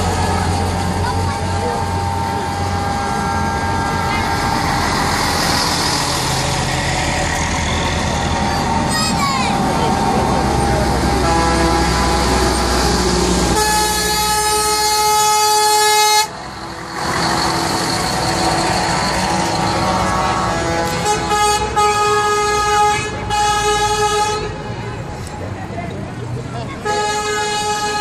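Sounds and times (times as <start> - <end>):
truck engine noise: 0.0 - 28.0
truck air horn blasts: 11.1 - 16.4, 19.2 - 24.7, 26.8 - 28.0.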